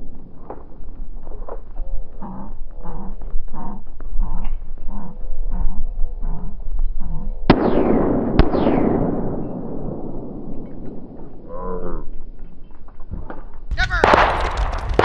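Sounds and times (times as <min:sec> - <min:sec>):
shotgun shots echoing: 0:07.5 - 0:11.5, 0:13.8 - 0:15.0.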